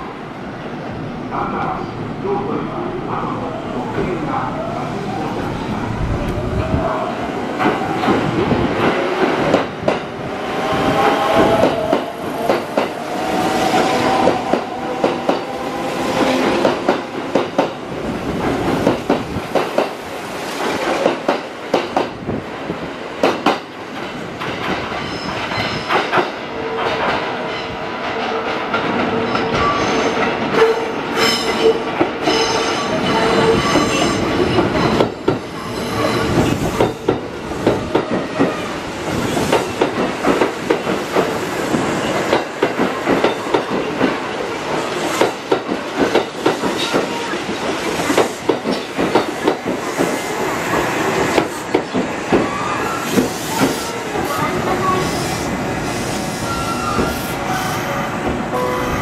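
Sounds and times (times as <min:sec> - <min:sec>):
wheel and brake squeal: 0:56.4 - 0:57.8.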